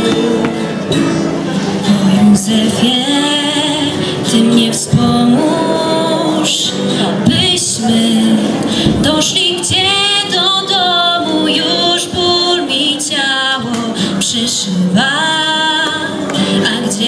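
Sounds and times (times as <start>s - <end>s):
strummed acoustic guitar: 0.0s - 17.0s
woman singing a carol: 1.8s - 17.0s.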